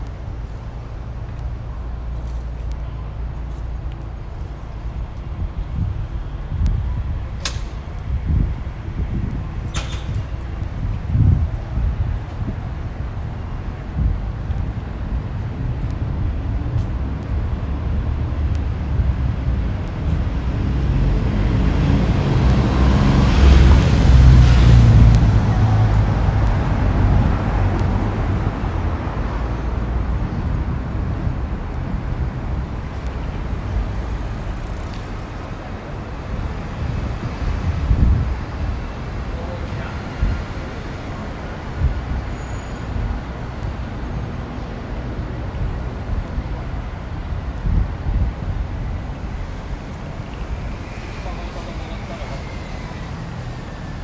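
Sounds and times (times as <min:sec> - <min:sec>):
wind rumble on microphone: 0:00.0 - 0:51.3
vehicle passing: 0:19.7 - 0:38.6.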